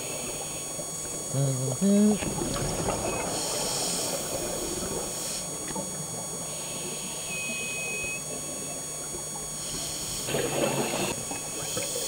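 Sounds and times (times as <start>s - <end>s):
diver's exhaust bubbles: 0.0s - 6.9s
underwater hiss and rumble: 0.0s - 12.0s.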